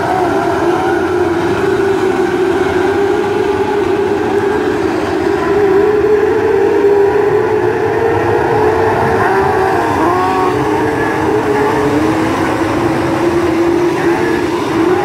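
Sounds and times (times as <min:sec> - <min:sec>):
race car engines racing past: 0:00.0 - 0:15.0.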